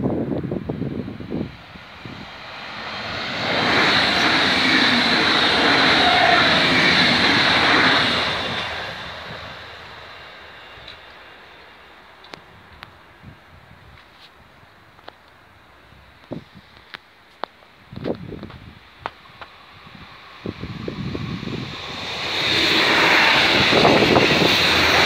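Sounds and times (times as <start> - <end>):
wind buffeting microphone: 0.0 - 10.8, 17.8 - 25.0
train wheels on rails: 0.2 - 14.3, 16.2 - 25.0.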